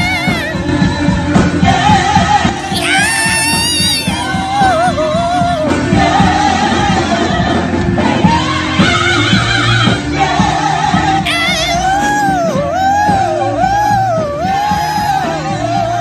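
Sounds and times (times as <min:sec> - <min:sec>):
dog howling: 0:00.0 - 0:00.6, 0:02.7 - 0:05.7, 0:11.3 - 0:13.2
gospel singing with accompaniment: 0:00.0 - 0:16.0.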